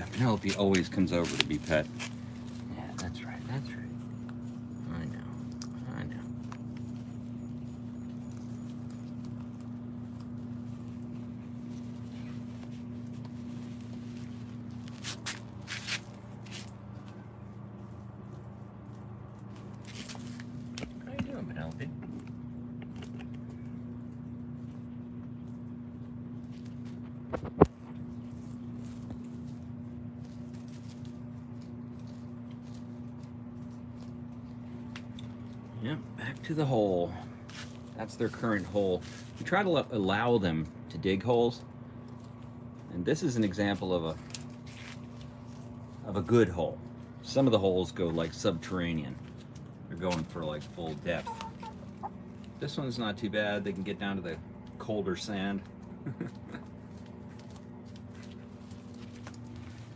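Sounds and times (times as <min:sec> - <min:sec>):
low hum: 0:00.0 - 0:59.9
hand stroking fur: 0:10.5 - 0:16.8.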